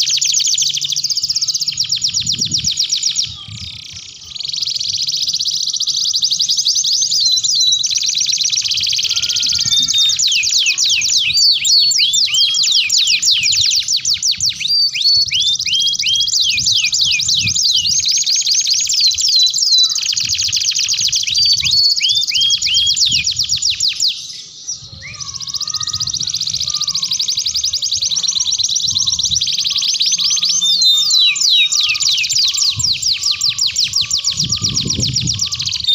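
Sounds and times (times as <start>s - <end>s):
canary singing trills: 0.0s - 35.9s.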